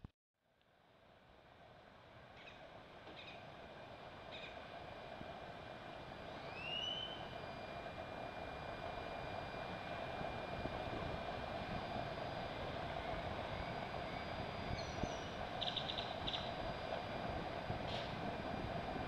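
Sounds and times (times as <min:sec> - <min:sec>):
wind: 0:00.4 - 0:19.0
bird twittering: 0:02.4 - 0:02.6, 0:03.2 - 0:03.4, 0:06.6 - 0:07.2, 0:14.8 - 0:16.6.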